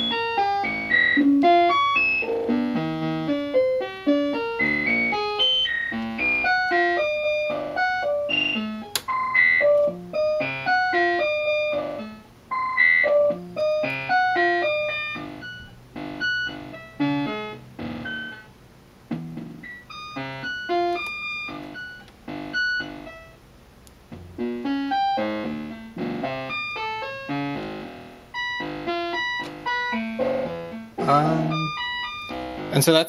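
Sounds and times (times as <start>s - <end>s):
synthesizer plucked notes: 0.0s - 12.2s, 24.1s - 33.0s.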